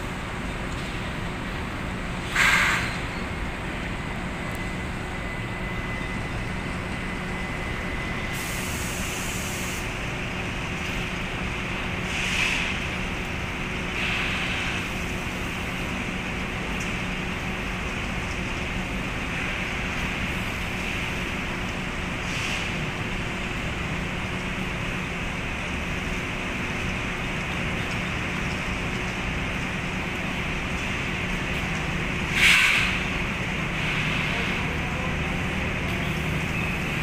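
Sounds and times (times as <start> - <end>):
conveyor rumbling and humming: 0.0 - 37.0
high hiss: 8.3 - 9.9.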